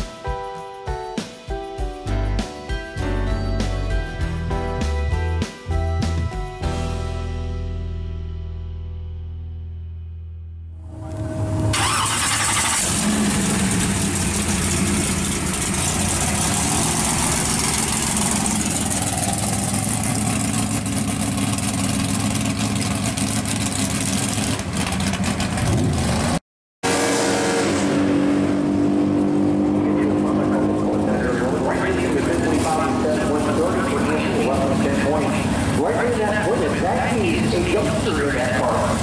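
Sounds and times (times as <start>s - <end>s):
music: 0.0s - 11.4s
drag race car engines running: 11.1s - 39.0s.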